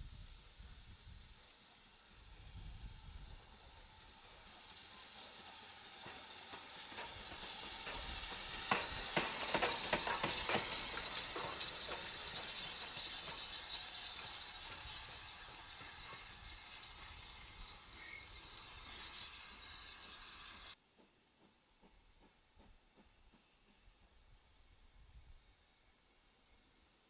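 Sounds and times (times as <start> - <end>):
steam locomotive hissing: 0.0 - 20.8
wheels clanking and knocking: 3.6 - 20.8.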